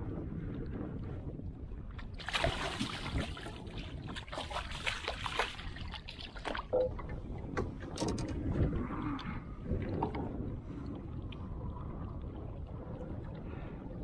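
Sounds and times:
low wind noise: 0.0 - 14.0
water lapping: 2.0 - 7.9
fish splashing: 2.2 - 6.7.

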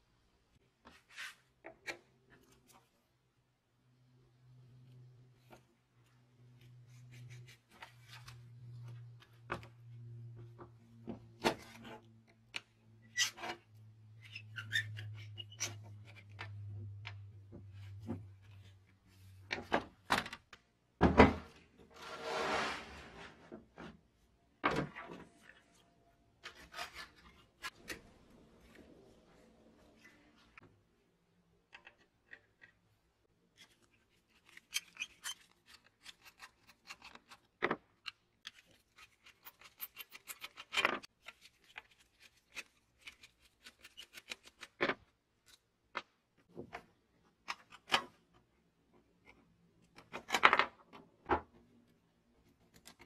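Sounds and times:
short rubbing scrape: 21.9 - 23.5.

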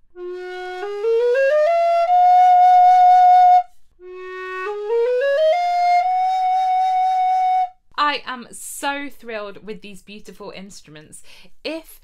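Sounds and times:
alto recorder playing scale: 0.1 - 7.8.

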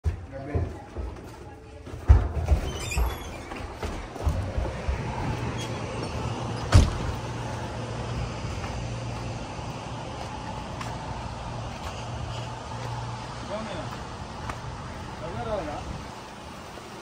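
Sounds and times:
door banging shut: 6.6 - 7.2.

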